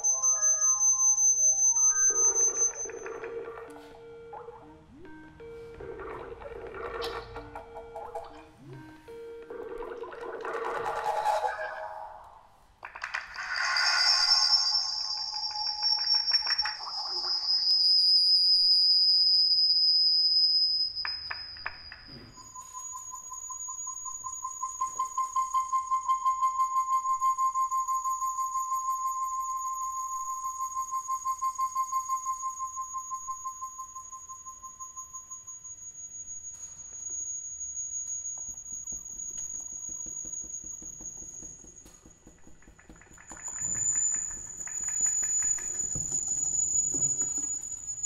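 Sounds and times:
high feedback whistle: 0:00.0 - 0:09.6, 0:13.1 - 0:48.0
lower wavering feedback tone: 0:00.0 - 0:09.6, 0:22.2 - 0:48.0.

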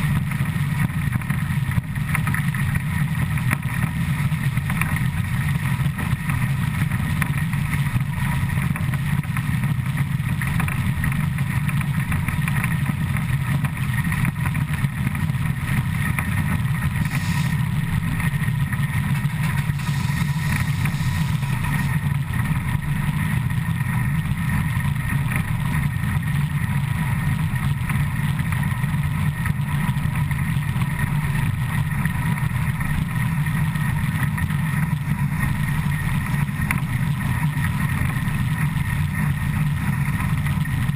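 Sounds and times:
train wheels rolling on rails: 0:16.8 - 0:22.4.

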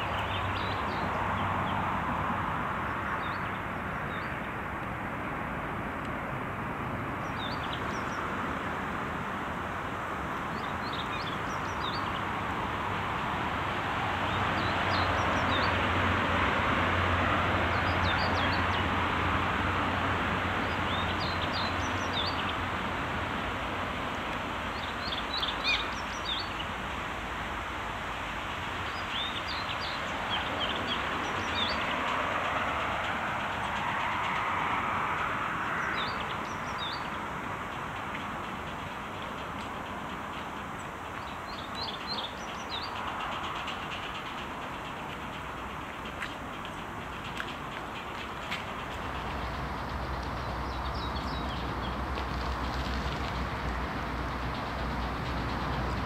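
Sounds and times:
distant traffic rushing hum: 0:00.0 - 0:56.0
small birds chirping: 0:10.5 - 0:12.3, 0:20.6 - 0:22.7, 0:24.7 - 0:26.8, 0:28.8 - 0:32.1, 0:35.7 - 0:52.0.

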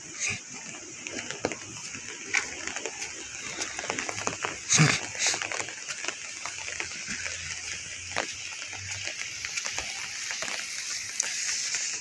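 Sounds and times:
rain tapping on umbrella: 0:00.0 - 0:12.0.

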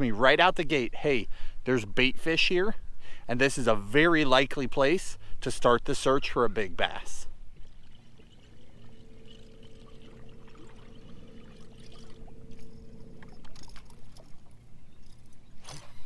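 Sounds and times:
water lapping against hull: 0:06.0 - 0:16.0
electric trolling motor humming: 0:07.0 - 0:16.0.

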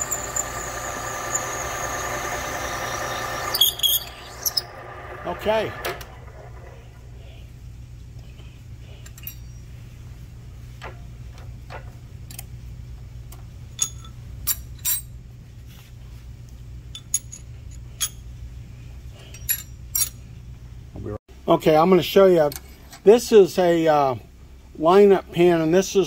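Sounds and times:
low machine hum: 0:00.0 - 0:26.0
metal tools clinking: 0:09.0 - 0:09.6, 0:13.7 - 0:15.2, 0:16.9 - 0:18.2, 0:19.2 - 0:20.3.

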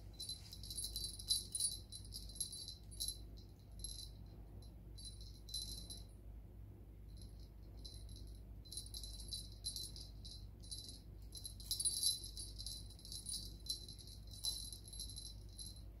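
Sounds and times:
small jingle bell jingling: 0:00.0 - 0:06.1, 0:07.1 - 0:16.0.

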